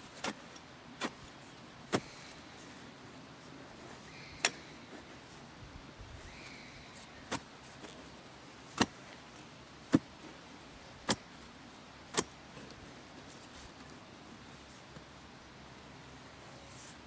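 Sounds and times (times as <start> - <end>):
spade chopping into soil: 1.0 - 1.2, 1.9 - 2.3, 7.3 - 8.0, 8.7 - 9.0, 9.9 - 10.2, 11.0 - 11.3, 12.1 - 12.4.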